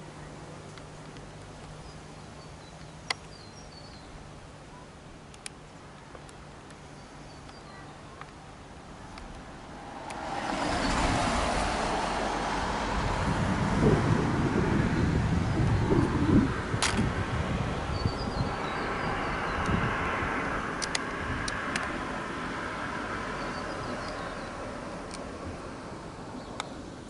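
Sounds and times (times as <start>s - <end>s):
sharp clicks: 5.3s - 6.8s, 20.8s - 22.0s
faint bird chirps: 6.8s - 8.2s
loud rushing noise: 9.5s - 21.5s.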